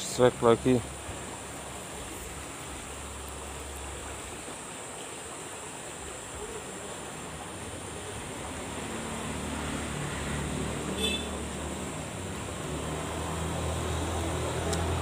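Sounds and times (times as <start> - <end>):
flowing water rushing: 0.0 - 15.0.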